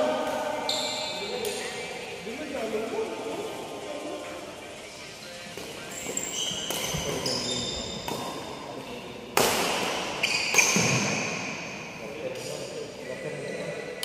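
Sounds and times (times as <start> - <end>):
rackets striking shuttlecock: 5.5 - 12.6
shoes squeaking on wooden floor: 5.8 - 8.1, 10.2 - 11.3.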